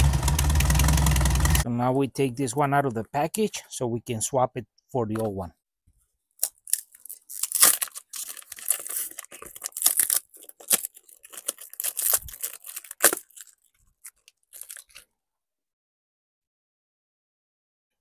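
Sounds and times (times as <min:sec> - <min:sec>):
packaging being torn and crinkled: 0:06.4 - 0:15.1.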